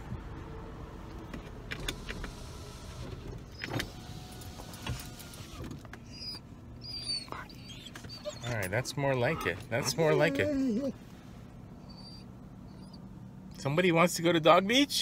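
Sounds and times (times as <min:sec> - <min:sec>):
dog whining: 0:06.0 - 0:11.1, 0:11.8 - 0:13.1.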